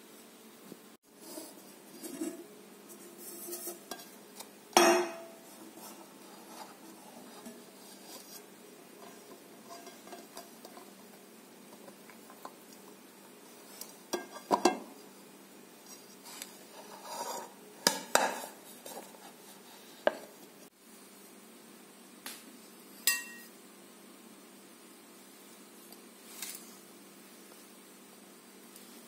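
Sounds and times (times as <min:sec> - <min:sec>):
metal cake tin clanking: 0:04.7 - 0:05.4.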